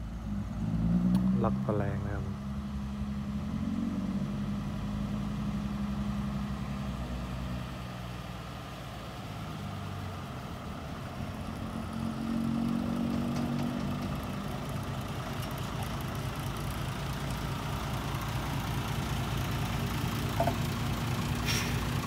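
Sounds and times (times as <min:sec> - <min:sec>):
diesel truck engine running: 0:01.4 - 0:22.0.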